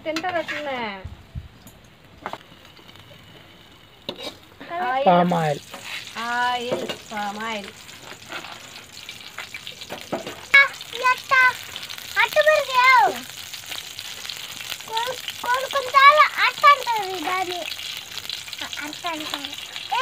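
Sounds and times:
spatula scraping metal pan: 0.1 - 0.9, 4.1 - 4.7
food frying sizzle: 1.6 - 20.0.

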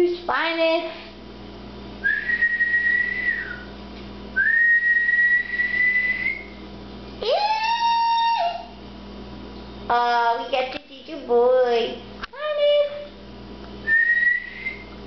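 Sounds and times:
person whistling high notes: 2.0 - 3.7, 4.4 - 6.5, 13.9 - 14.9.

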